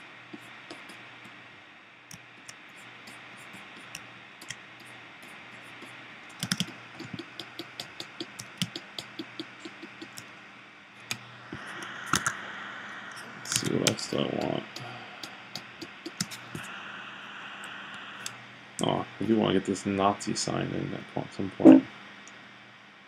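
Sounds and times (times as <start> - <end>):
faint steady hiss: 0.0 - 23.0
computer keys clicking: 6.4 - 10.2, 12.1 - 12.4, 15.6 - 16.6.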